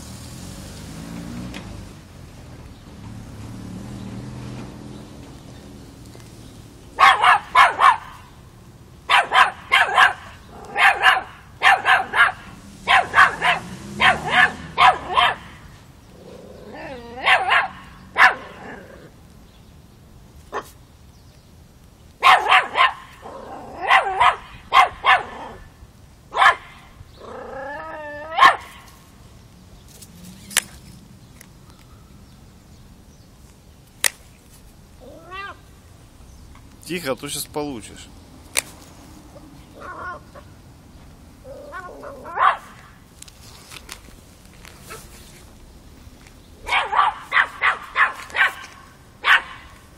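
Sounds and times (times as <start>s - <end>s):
puppy yapping: 7.0s - 8.2s, 9.1s - 15.6s, 16.6s - 19.1s, 22.2s - 25.6s, 26.3s - 28.9s, 39.8s - 40.5s, 41.5s - 42.9s, 46.6s - 49.8s.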